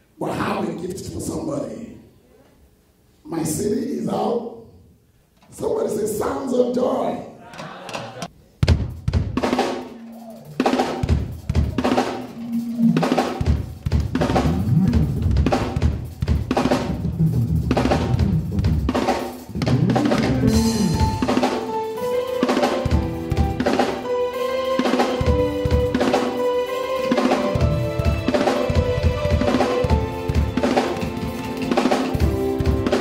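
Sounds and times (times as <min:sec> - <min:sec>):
gospel band playing: 0:05.5 - 0:33.0
rising held notes: 0:11.5 - 0:13.4, 0:19.5 - 0:33.0.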